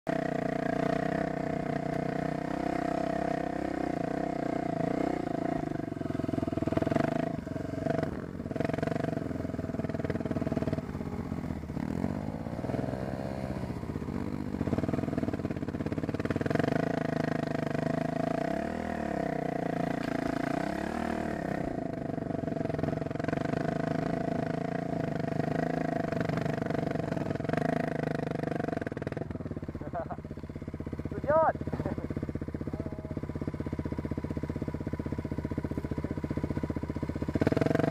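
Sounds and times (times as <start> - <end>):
dirt bike engine revving: 0.1 - 37.9.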